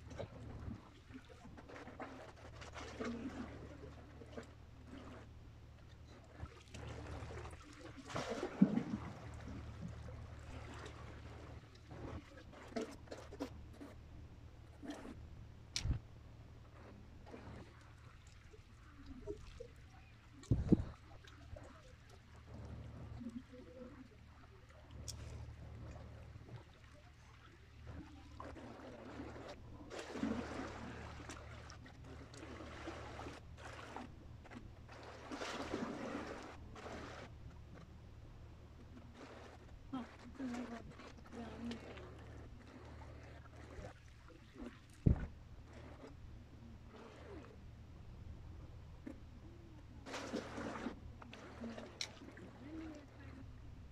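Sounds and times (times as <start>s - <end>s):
waves lapping against rocks: 0.0s - 14.0s, 16.7s - 37.9s, 38.7s - 47.7s, 50.0s - 53.9s
wind rumble on microphone: 20.4s - 21.0s, 45.0s - 45.4s.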